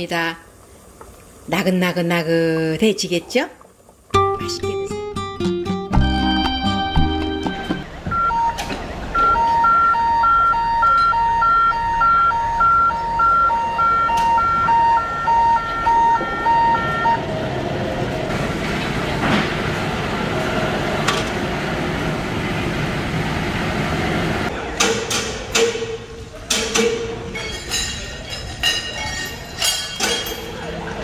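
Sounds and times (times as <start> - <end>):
harbour noise: 0.6 - 24.8
two-tone warning beeper: 6.0 - 17.3.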